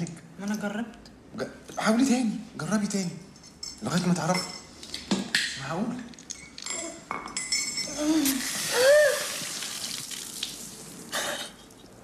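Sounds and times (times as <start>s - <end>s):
person's shocked cry: 8.0s - 9.5s.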